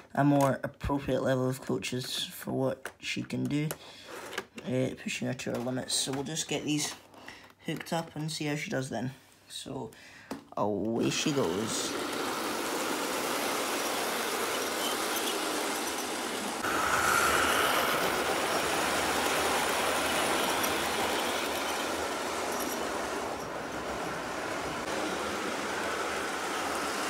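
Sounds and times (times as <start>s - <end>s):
model train motor and wheels running: 10.6s - 27.0s.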